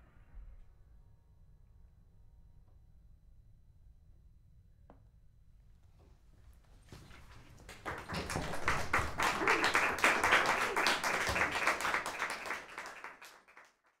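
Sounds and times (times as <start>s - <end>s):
audience applauding: 7.0s - 14.0s.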